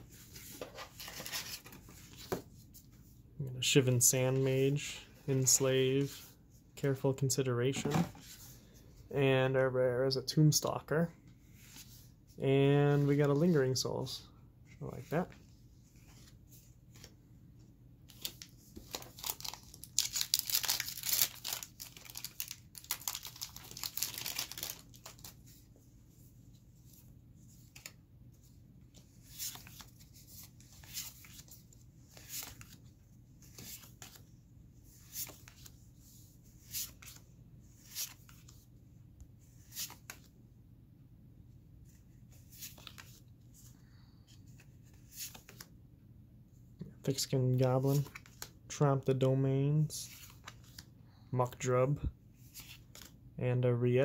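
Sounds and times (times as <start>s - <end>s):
wrapper tearing and crinkling: 19.2s - 25.3s.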